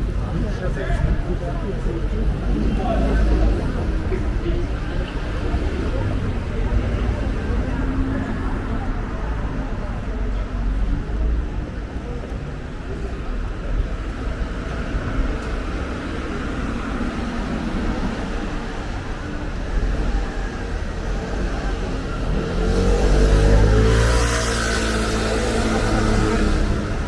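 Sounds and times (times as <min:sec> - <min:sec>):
street traffic rumbling: 0:00.0 - 0:27.0
vehicle engine accelerating: 0:19.6 - 0:27.0.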